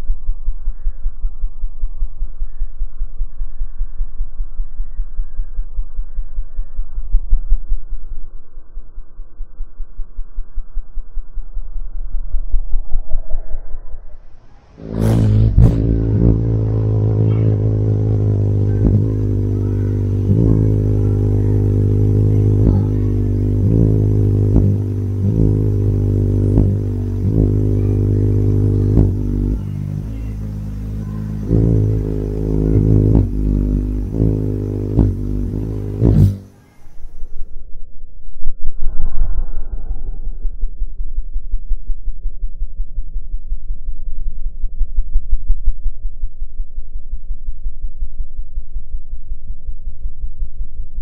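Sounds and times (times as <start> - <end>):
hummingbird wings humming: 12.1 - 37.5.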